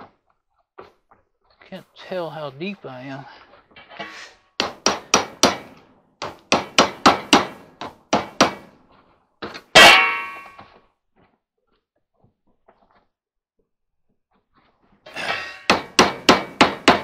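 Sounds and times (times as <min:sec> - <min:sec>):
loud metallic clang: 0:09.7 - 0:10.6.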